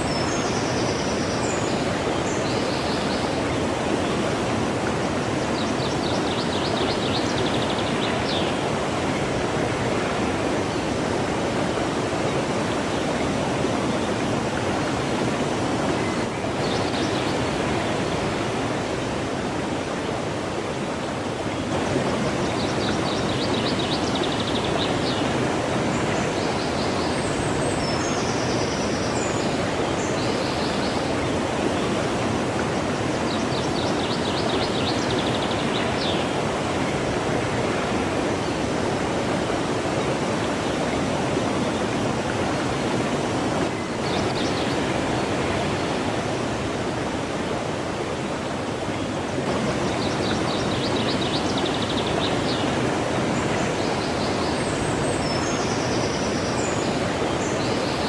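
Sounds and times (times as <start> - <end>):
stream rushing: 0.0 - 58.0.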